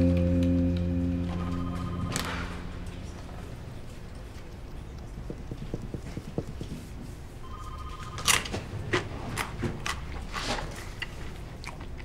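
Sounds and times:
low room hum: 0.0s - 12.0s
electronic telephone ring: 1.4s - 2.7s, 7.4s - 8.4s.

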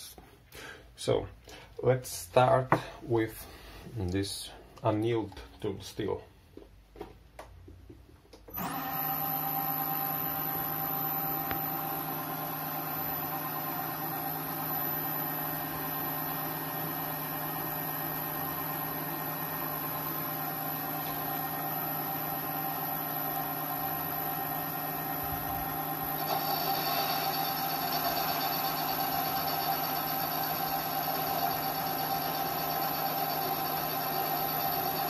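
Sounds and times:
lathe motor whining: 8.5s - 35.0s.

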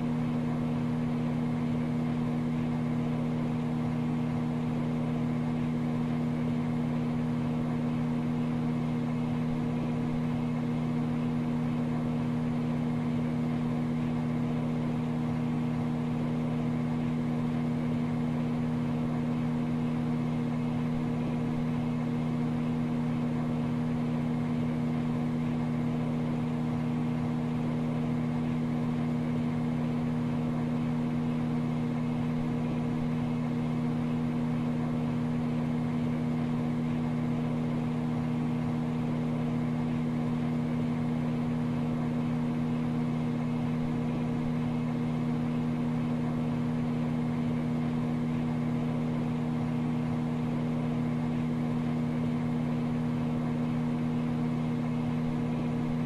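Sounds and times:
microwave oven humming: 0.0s - 56.0s.

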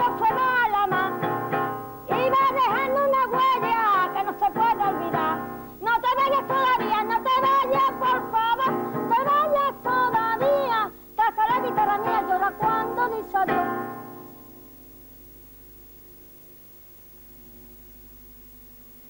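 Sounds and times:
woman singing: 0.0s - 14.3s.

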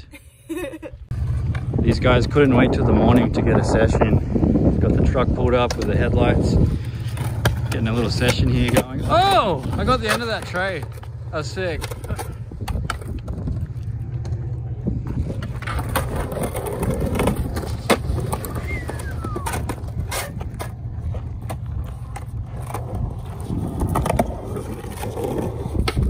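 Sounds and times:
steady low rumble: 1.0s - 26.0s
skateboard wheels on concrete: 1.1s - 26.0s
skateboard clacking on concrete: 5.6s - 26.0s.

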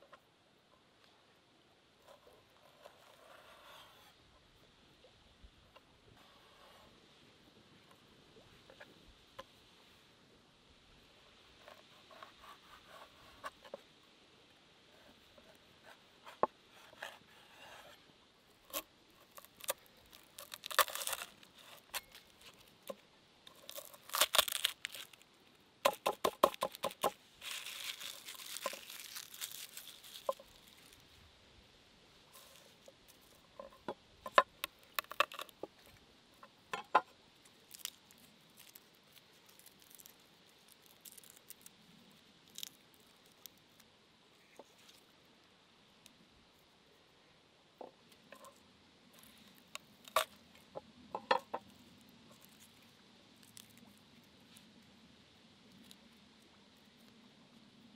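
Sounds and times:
garlic skins crackling and tearing: 18.7s - 31.0s, 34.4s - 35.7s, 37.4s - 43.8s, 53.4s - 54.3s.

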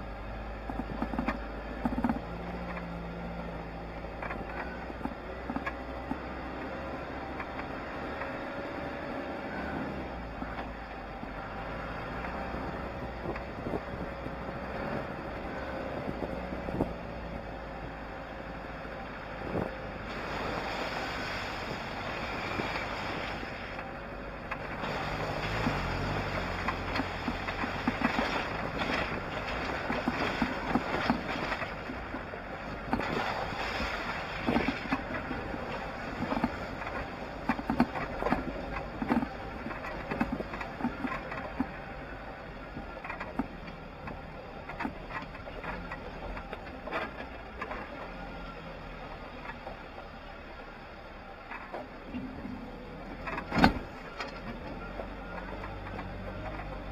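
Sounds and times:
engine running steadily: 0.0s - 56.9s
vehicle knocks and rattles: 0.6s - 8.6s, 11.8s - 18.0s, 21.8s - 48.3s, 51.5s - 56.9s
wind on microphone: 12.5s - 17.0s.

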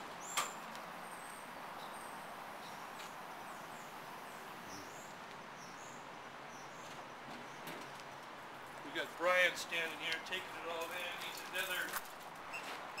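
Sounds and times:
small birds chirping: 0.2s - 8.8s.

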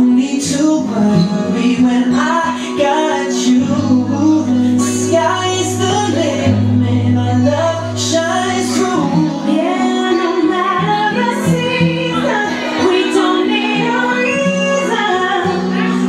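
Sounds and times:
instrumental backing: 0.0s - 16.0s
woman singing long notes: 4.4s - 16.0s.

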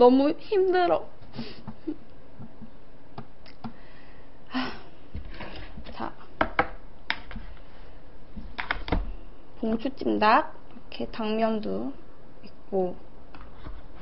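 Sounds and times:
chopsticks tapping plastic container: 6.4s - 7.4s.

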